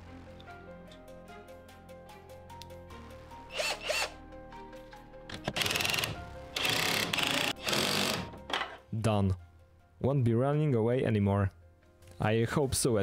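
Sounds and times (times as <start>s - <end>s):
background music: 0.0s - 13.0s
power drill driving fasteners: 3.5s - 4.2s, 5.3s - 8.8s.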